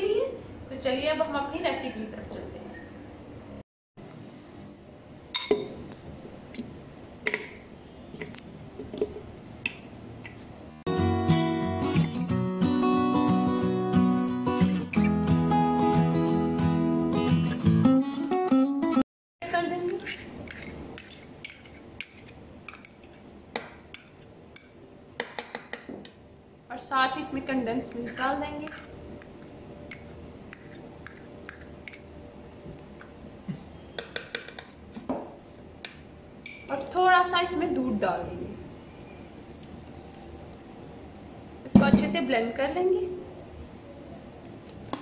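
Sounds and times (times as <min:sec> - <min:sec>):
cream pouring: 0:39.4 - 0:40.7.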